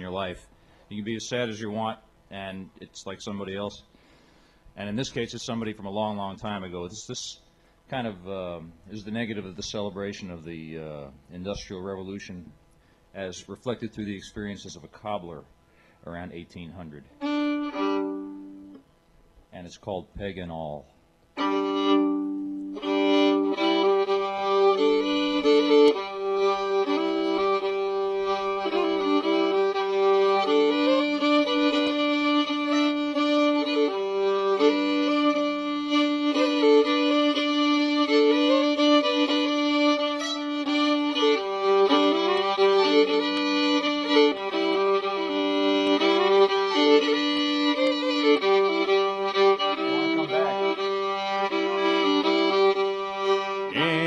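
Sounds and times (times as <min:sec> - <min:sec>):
fiddle melody: 0:00.0 - 0:00.3, 0:17.1 - 0:18.8, 0:21.4 - 0:54.0
droning notes: 0:21.4 - 0:54.0.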